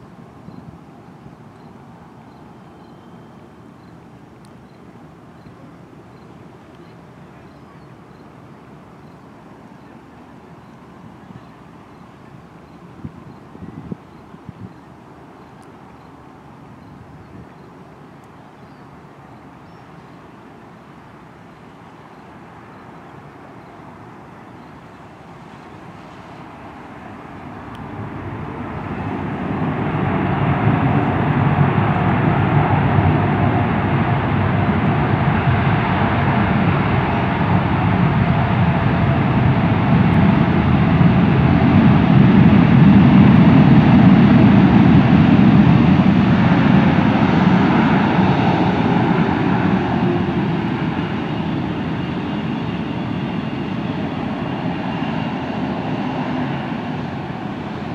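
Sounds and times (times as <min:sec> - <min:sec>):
jet engines roaring: 0:22.4 - 0:57.9.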